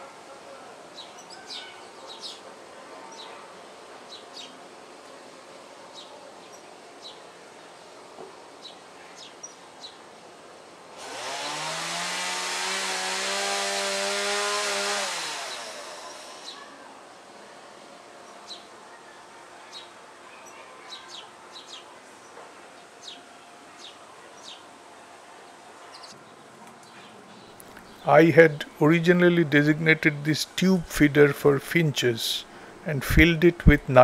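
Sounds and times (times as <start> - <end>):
small birds chirping: 1.0 - 2.4, 19.7 - 24.7, 25.8 - 28.1
power saw whining: 11.0 - 16.6.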